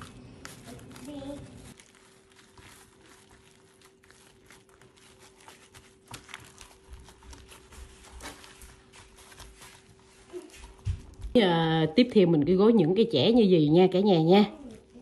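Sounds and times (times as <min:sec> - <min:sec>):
crinkling of tofu skin: 0:00.0 - 0:11.4, 0:14.5 - 0:15.0.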